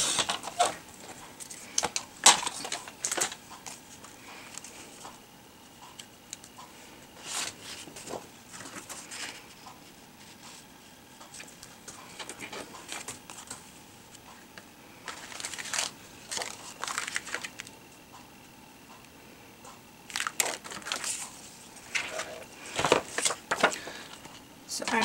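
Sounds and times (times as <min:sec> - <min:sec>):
paper rustling and sliding: 0:07.2 - 0:09.6, 0:15.0 - 0:17.7, 0:20.1 - 0:24.4.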